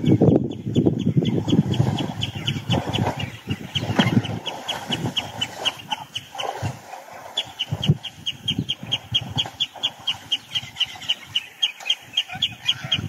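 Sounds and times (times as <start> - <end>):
elephants sloshing in mud: 1.6 - 8.1.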